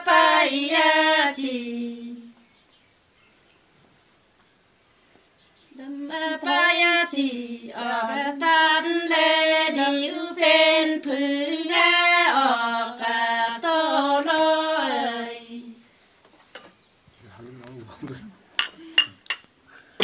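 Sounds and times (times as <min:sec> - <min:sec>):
woman singing unaccompanied: 0:00.0 - 0:02.4, 0:05.7 - 0:15.8.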